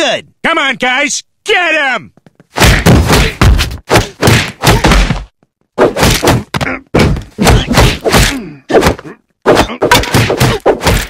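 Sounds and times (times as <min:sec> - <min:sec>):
cartoon punch and kick impacts: 0:02.5 - 0:11.0.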